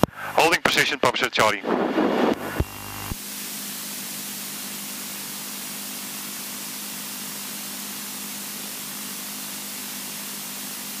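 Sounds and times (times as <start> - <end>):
radio audio hiss: 0.0 - 3.5.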